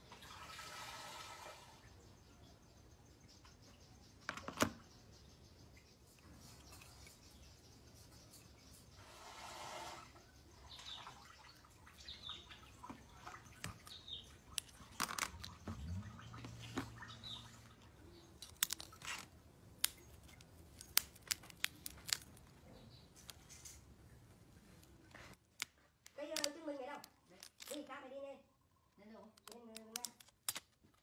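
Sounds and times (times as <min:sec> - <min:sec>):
cracked glass crunching: 0:18.4 - 0:22.6, 0:24.9 - 0:27.9
small clicks of glass and tweezers: 0:29.2 - 0:30.6.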